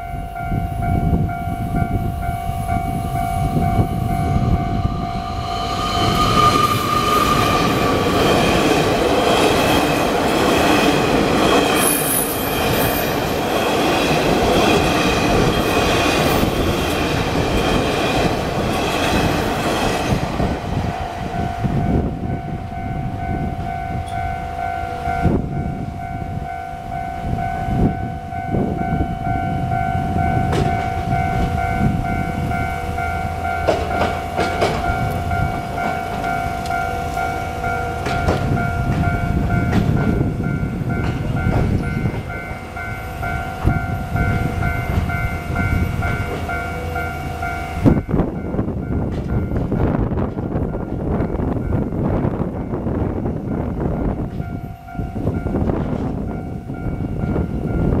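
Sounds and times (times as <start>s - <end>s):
electronic crossing warning bell: 0.0s - 20.2s, 21.2s - 58.0s
train wheels rushing on rails: 0.0s - 58.0s
high wheel squeal: 3.9s - 8.6s.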